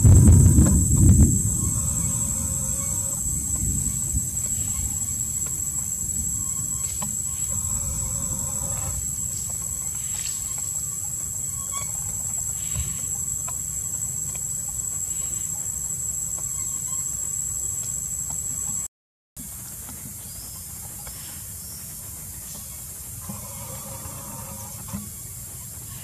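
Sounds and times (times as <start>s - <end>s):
low rumble: 0.0s - 10.6s
high-pitched whine: 0.0s - 18.9s
faint chirps: 1.4s - 18.9s
faint animal call: 1.5s - 5.7s, 6.4s - 14.4s, 22.5s - 26.0s.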